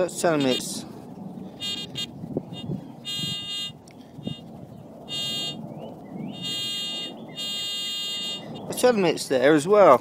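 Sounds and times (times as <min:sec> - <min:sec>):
pinpointer buzzy alert tone: 0:00.4 - 0:00.7, 0:01.6 - 0:04.4, 0:05.1 - 0:05.6, 0:06.3 - 0:08.6.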